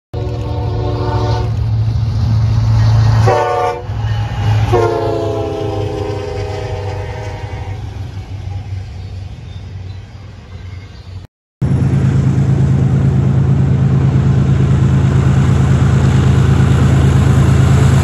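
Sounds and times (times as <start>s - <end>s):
locomotive air horn: 0.2s - 1.7s, 2.8s - 8.0s
diesel engine rumble: 0.2s - 9.8s, 11.6s - 18.0s.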